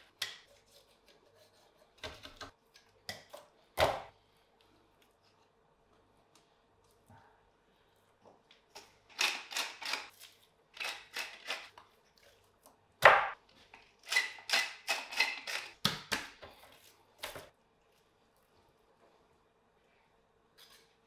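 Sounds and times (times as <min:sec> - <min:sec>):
salt mill grinding: 0:10.8 - 0:11.7.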